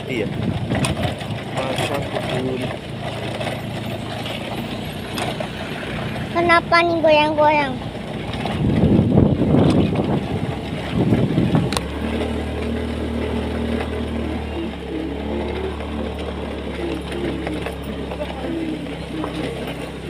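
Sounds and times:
motorcycle engine on bumpy road: 0.0 - 20.0.

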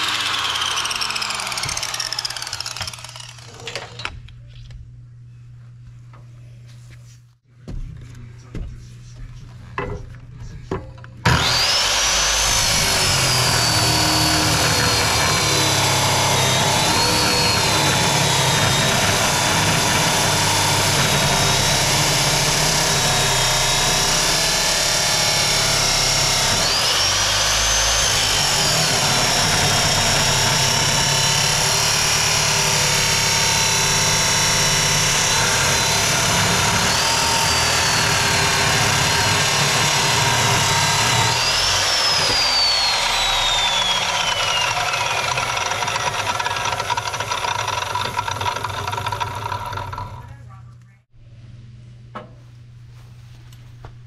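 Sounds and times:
chop saw cutting steel: 0.0 - 4.1, 11.2 - 50.3.

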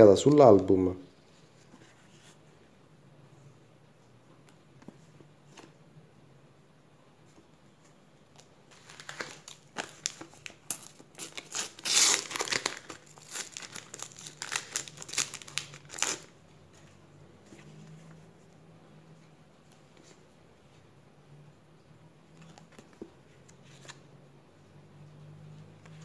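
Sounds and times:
wrapper crinkling and tearing: 8.7 - 16.4.

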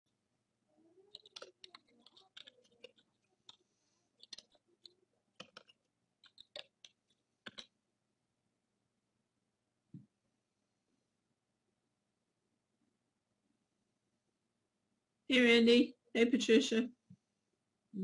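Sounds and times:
computer keyboard and mouse clicking: 1.1 - 7.8.

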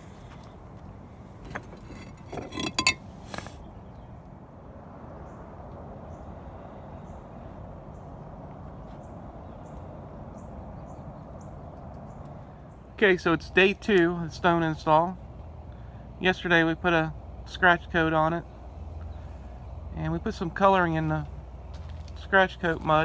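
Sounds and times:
stone pieces clinking together: 1.5 - 3.0.

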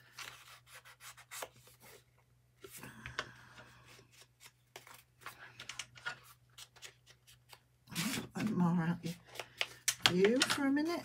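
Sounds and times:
paper tapping and scraping: 9.2 - 11.0.

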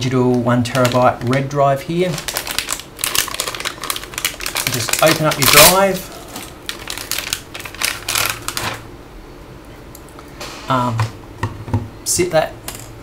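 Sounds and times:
plastic bag crinkling: 0.2 - 8.9.

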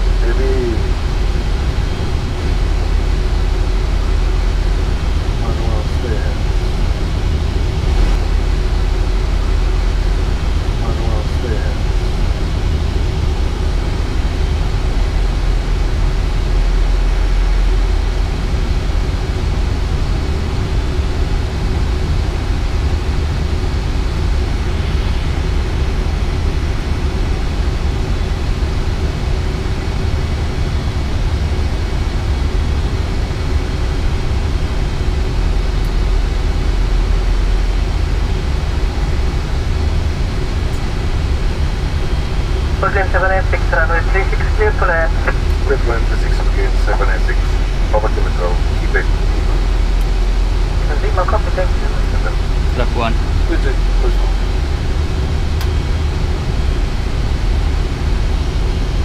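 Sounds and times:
deep low aircraft rumble: 0.0 - 59.0
rushing airflow: 6.2 - 11.0.

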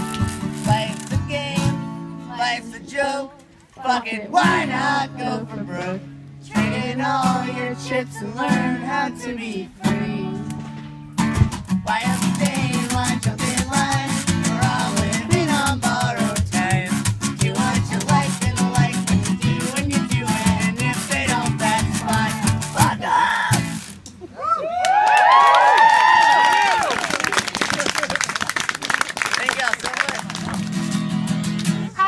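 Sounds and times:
person singing: 0.0 - 10.5, 11.9 - 23.8
strummed acoustic guitar: 0.0 - 24.1, 30.2 - 32.0.

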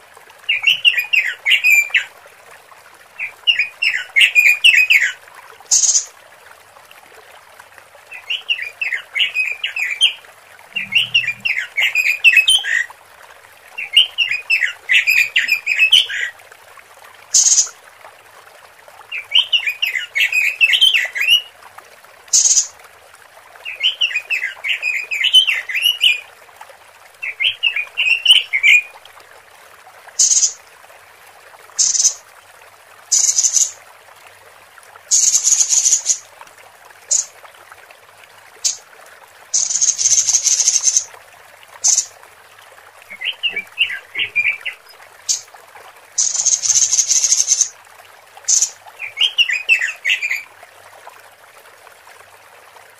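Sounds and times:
bird chattering call: 10.7 - 11.7, 43.1 - 44.8, 46.2 - 47.7.

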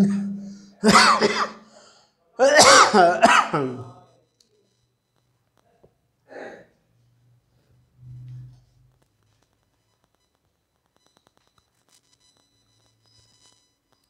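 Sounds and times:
man coughing and clearing throat: 0.0 - 1.7, 2.4 - 4.0.

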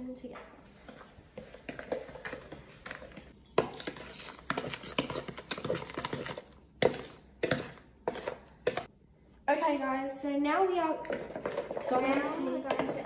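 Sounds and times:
spatula scraping mixing bowl: 1.4 - 8.9, 11.0 - 13.0.

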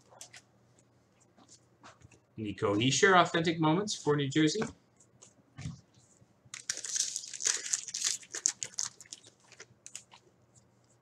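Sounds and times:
wrapper crinkling and tearing: 6.5 - 10.2.

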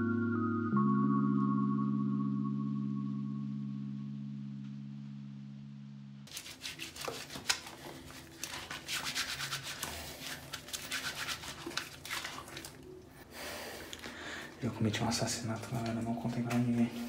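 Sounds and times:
low musical tone: 0.0 - 6.3
rubbing and scratching at microphone: 6.3 - 12.5.

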